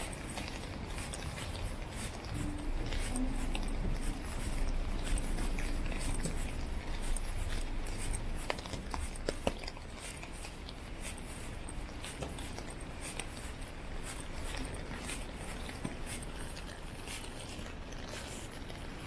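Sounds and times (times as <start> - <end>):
city traffic rumble: 0.0 - 9.5.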